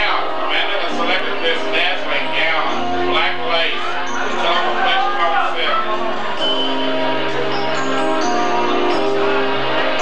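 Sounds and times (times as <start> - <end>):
music with slow sustained notes: 0.0 - 10.0.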